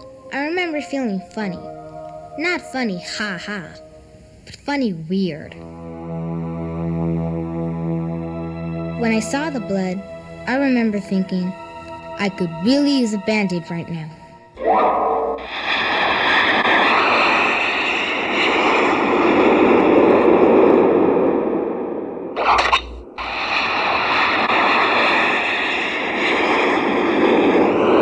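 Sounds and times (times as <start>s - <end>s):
steady tones: 0.0s - 16.7s
jet-like rushing roar: 14.6s - 28.0s.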